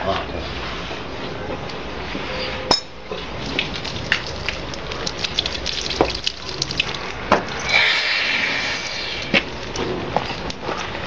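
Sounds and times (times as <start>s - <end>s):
water trickling onto concrete: 3.2s - 11.0s.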